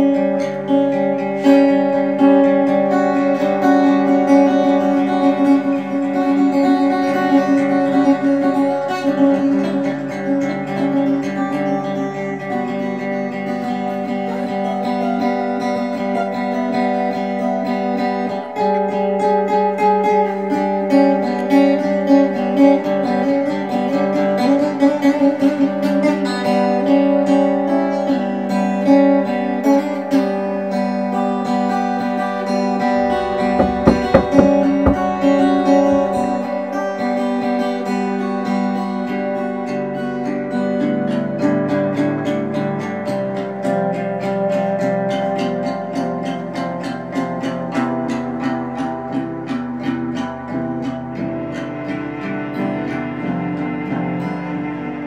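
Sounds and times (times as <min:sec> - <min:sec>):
acoustic guitar strumming chords: 0:30.0 - 0:39.6.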